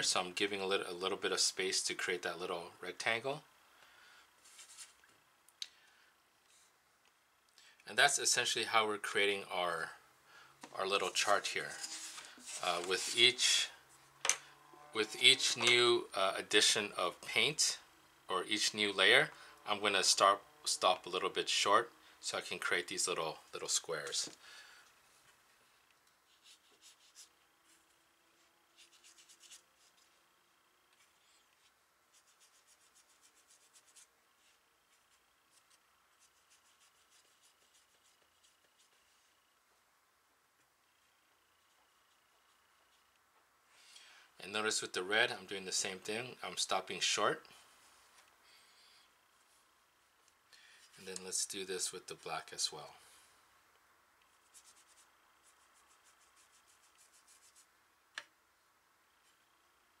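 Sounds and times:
brush swishing on paper: 0:04.4 - 0:05.0, 0:10.9 - 0:13.7, 0:26.2 - 0:30.2, 0:31.0 - 0:39.4, 0:54.3 - 0:57.7
paintbrush rubbing strokes: 0:04.4 - 0:05.1, 0:10.8 - 0:14.1, 0:26.2 - 0:39.5, 0:40.9 - 0:43.1, 0:54.3 - 0:57.7.

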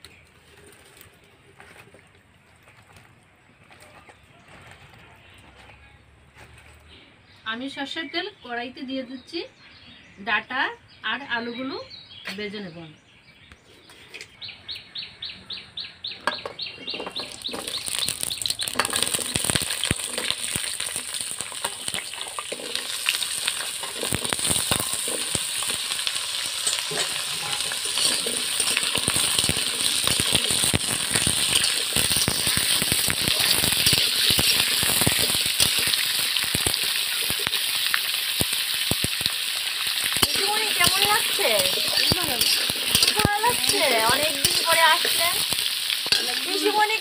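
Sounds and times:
metal spatula scraping a wok: 0:16.8 - 0:37.7, 0:39.9 - 0:47.0
vegetables sizzling in hot oil: 0:16.8 - 0:47.0.

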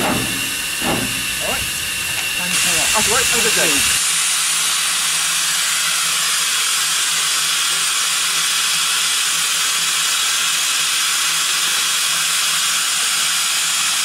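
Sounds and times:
steam hissing from locomotive: 0:00.0 - 0:14.0.

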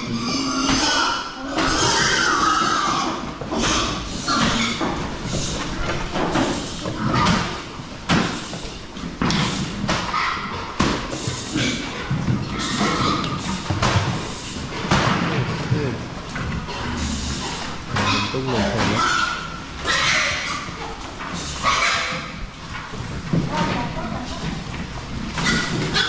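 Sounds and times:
pigs squealing: 0:00.0 - 0:14.8, 0:16.6 - 0:22.6, 0:25.2 - 0:26.0
knocks and thumps: 0:02.6 - 0:17.0.

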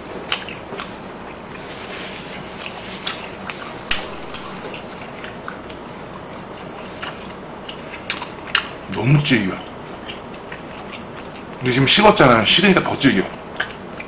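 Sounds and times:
person chewing meat: 0:00.0 - 0:14.0
wet mouth clicks and smacks: 0:00.3 - 0:01.4, 0:02.6 - 0:08.9, 0:09.5 - 0:11.6, 0:13.3 - 0:14.0.

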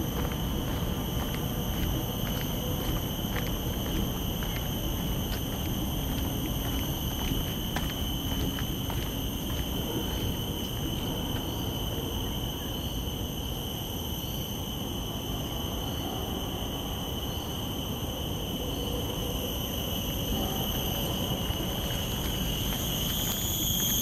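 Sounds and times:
low background rumble: 0:00.0 - 0:11.6
insects droning: 0:00.0 - 0:24.0.

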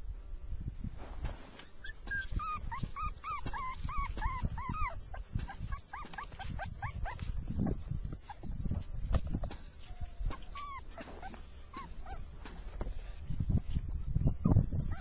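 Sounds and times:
puppy whimpering in high whines: 0:01.7 - 0:08.7, 0:09.8 - 0:12.3, 0:14.2 - 0:15.0.

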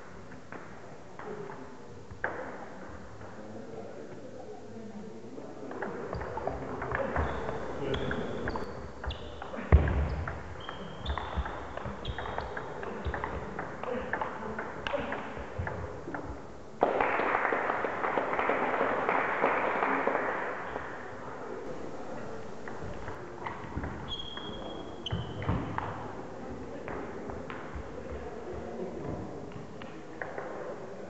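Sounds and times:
shoe squeaks on wooden floor: 0:07.0 - 0:09.4, 0:10.1 - 0:12.6, 0:24.1 - 0:25.5
applause: 0:16.8 - 0:20.8.

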